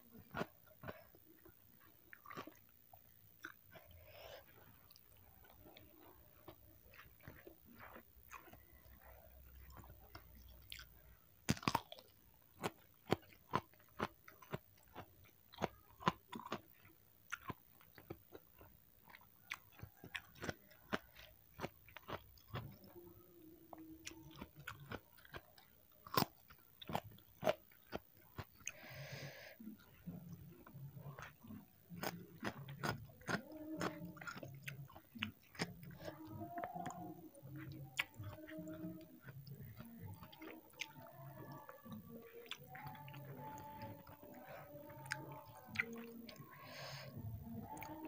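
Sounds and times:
soft wet chewing: 0.0 - 48.0
crunching raw vegetables: 0.1 - 48.0.

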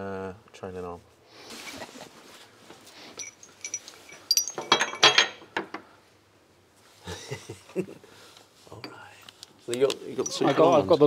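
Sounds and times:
soft rustle: 0.8 - 4.4
steel bolts clinking: 3.2 - 5.4, 10.2 - 11.0.

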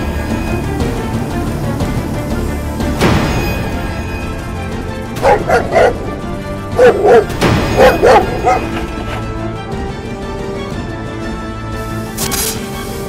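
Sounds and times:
background music: 0.0 - 13.0
dog barking: 5.2 - 9.2.

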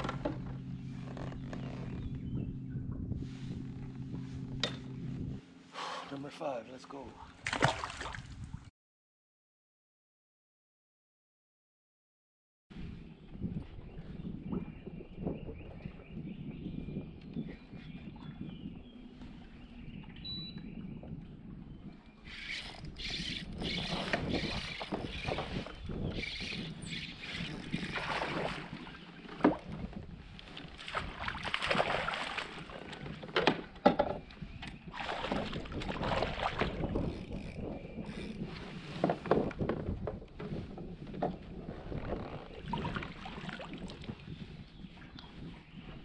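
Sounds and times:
water sloshing against kayak hull: 21.1 - 44.4.

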